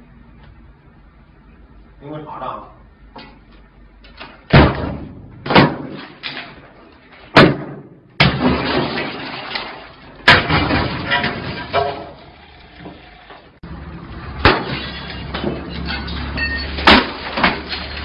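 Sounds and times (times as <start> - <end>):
glass breaking: 8.2 - 12.3, 14.4 - 18.0.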